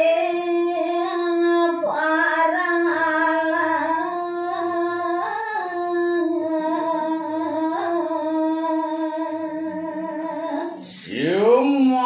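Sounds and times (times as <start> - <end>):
woman singing unaccompanied: 0.0 - 11.0.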